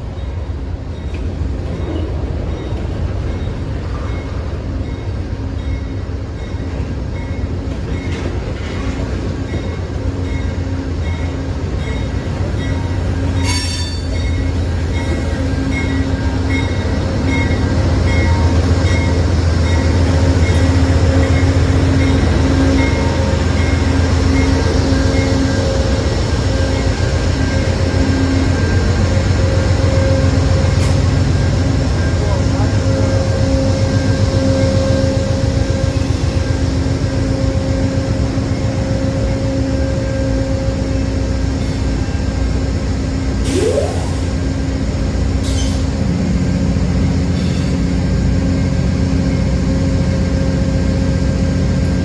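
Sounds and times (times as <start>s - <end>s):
diesel locomotive engine rumble: 0.0s - 52.0s
freight cars rumbling on rails: 0.0s - 52.0s.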